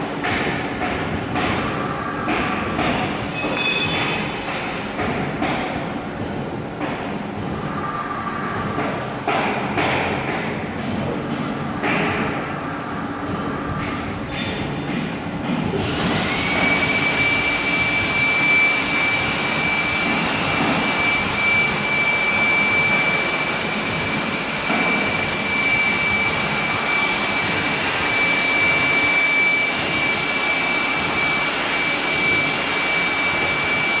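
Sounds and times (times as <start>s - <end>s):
grinder machine whirring: 15.8s - 34.0s
high steady whine: 15.8s - 34.0s.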